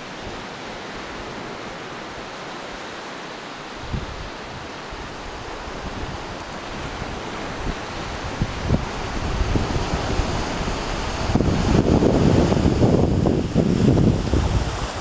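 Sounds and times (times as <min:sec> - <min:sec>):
sea surf hissing on a beach: 0:00.0 - 0:15.0
wind buffeting microphone: 0:03.6 - 0:15.0.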